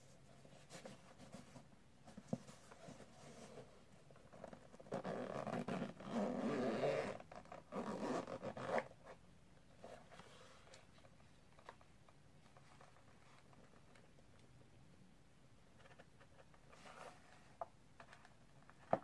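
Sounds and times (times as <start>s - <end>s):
zipper pulled open: 4.8s - 9.0s.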